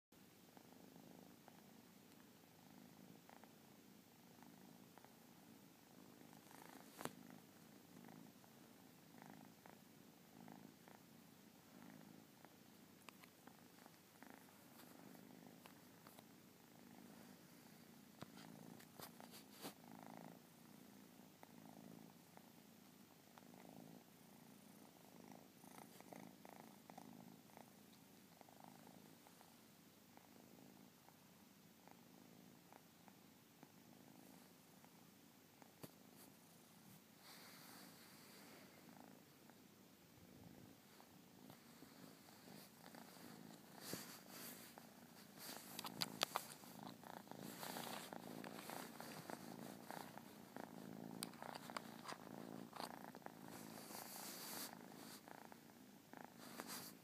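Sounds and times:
kitten purring: 0.2 - 57.0.

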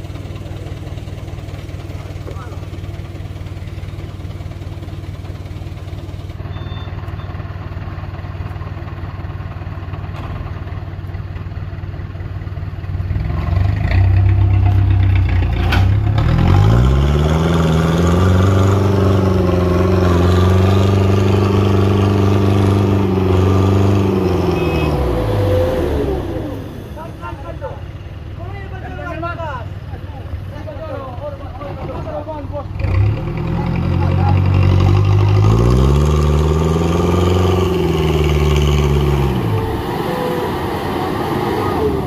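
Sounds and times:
diesel truck engine revving: 12.8 - 42.0.

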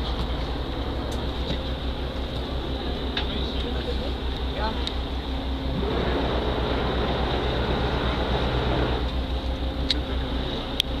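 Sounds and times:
boat engine throbbing: 0.0 - 11.0.

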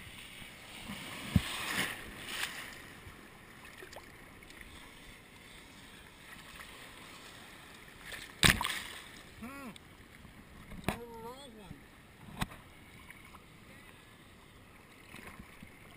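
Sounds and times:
water sloshing: 0.7 - 11.2
loud splash: 8.4 - 9.1.

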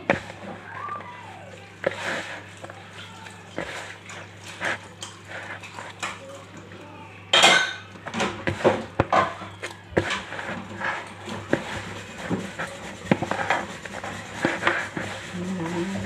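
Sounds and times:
hands kneading dough in a bowl: 0.0 - 6.9, 7.6 - 16.0.

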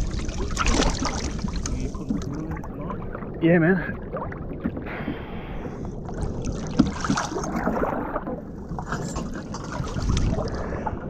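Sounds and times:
water splashing against boat hull: 0.0 - 3.4, 6.0 - 10.9.

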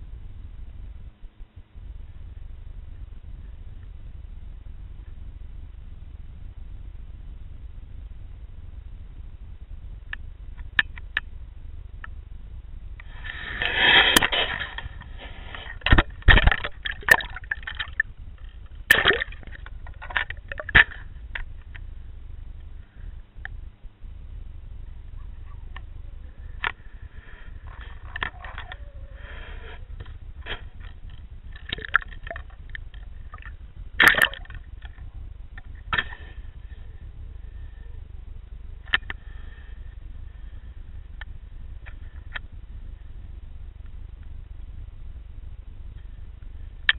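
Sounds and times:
low steady hum: 0.0 - 46.9
steady low underwater rumble: 0.0 - 46.9
faint clicks: 10.1 - 11.4
underwater clicks and knocks: 15.6 - 21.8, 27.6 - 28.8, 30.0 - 36.2
rush of water: 18.9 - 21.0.

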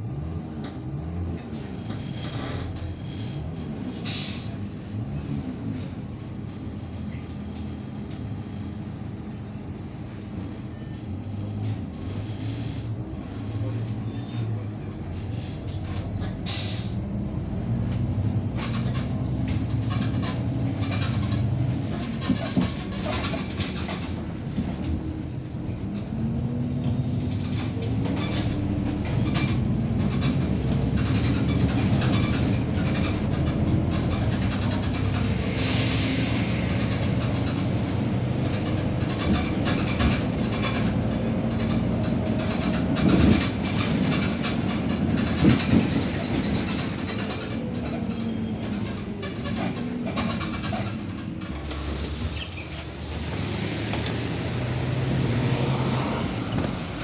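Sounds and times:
bus engine running: 0.0 - 57.0
rattling of bus body: 0.2 - 57.0.

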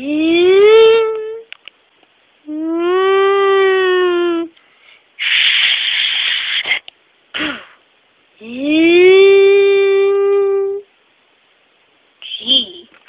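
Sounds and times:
child humming oooo: 2.5 - 4.5, 8.5 - 10.8
child making breathy hiss: 5.2 - 6.8, 7.4 - 7.8
short mouth puff: 5.2 - 7.8.

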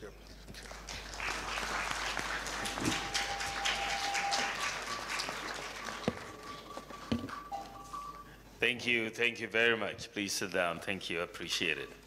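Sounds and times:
audience applauding: 0.6 - 7.5.

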